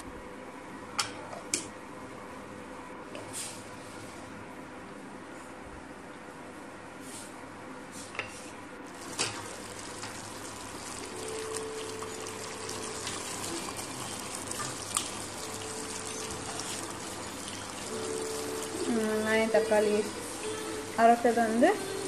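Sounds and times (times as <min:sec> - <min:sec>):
chicken simmering and bubbling: 0:08.9 - 0:19.4.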